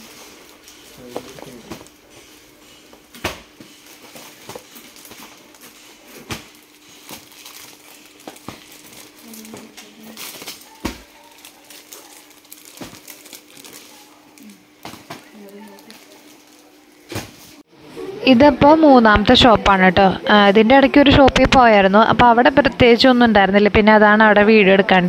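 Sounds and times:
plastic wrappers crinkling: 6.4s - 17.0s.

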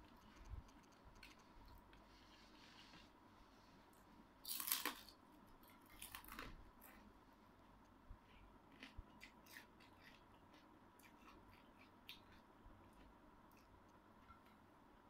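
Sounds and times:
dried fish snapping and crackling: 4.4s - 5.2s.

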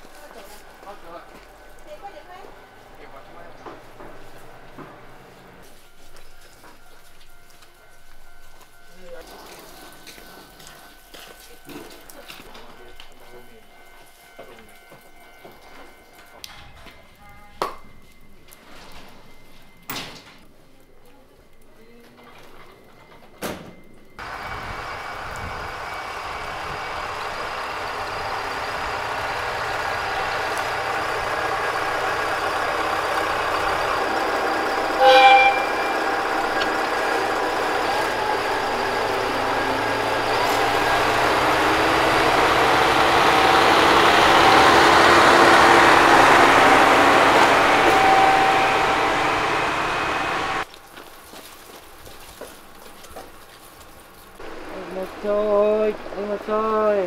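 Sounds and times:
diesel railcar engine and wheels: 0.0s - 57.0s
train horn toot: 32.6s - 41.2s, 43.2s - 50.6s.

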